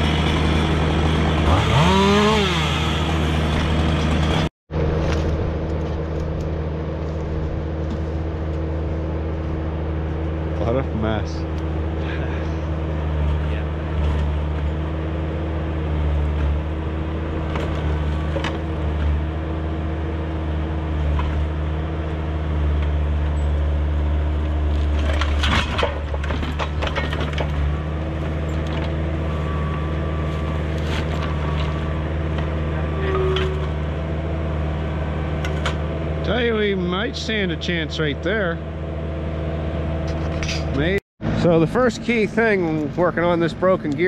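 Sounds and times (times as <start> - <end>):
diesel engine idling: 0.0 - 25.4, 26.0 - 44.0
metallic knocks and clanks: 24.9 - 27.8.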